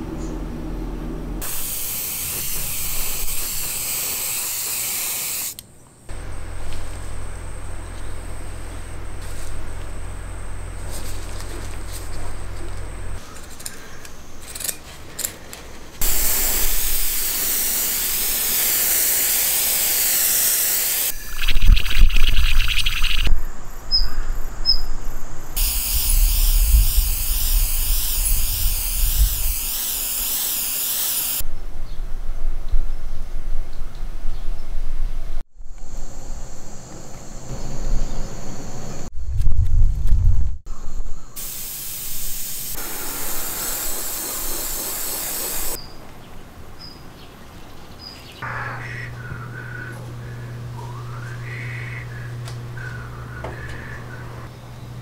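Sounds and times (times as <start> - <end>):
low rumbles: 0.0 - 1.4
low hum: 0.0 - 1.5, 6.1 - 13.4, 21.1 - 25.6
airbrush spraying hiss: 1.4 - 5.6, 16.0 - 23.3, 25.6 - 31.4, 41.4 - 45.8.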